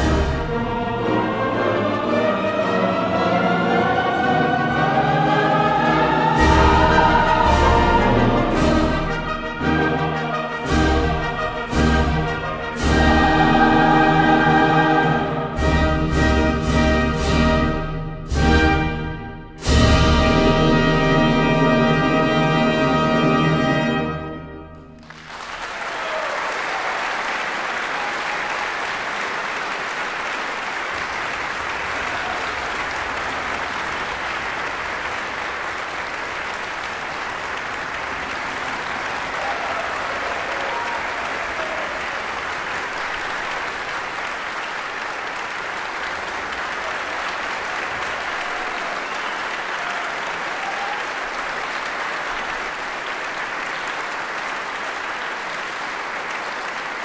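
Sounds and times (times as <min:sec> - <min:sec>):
audience applauding: 0:25.0 - 0:57.0.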